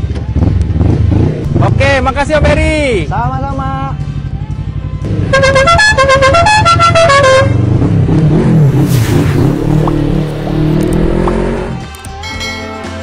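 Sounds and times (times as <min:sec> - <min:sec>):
motorcycle engine revving: 0:00.3 - 0:02.8, 0:05.0 - 0:11.9
musical horn playing a tune: 0:05.3 - 0:07.6.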